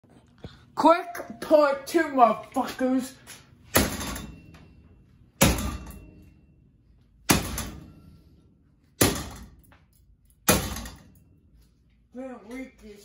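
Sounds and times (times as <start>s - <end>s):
sharp bangs on metal fan motor: 3.7s - 4.6s, 5.4s - 6.3s, 7.2s - 8.3s, 9.0s - 9.7s, 10.4s - 11.3s.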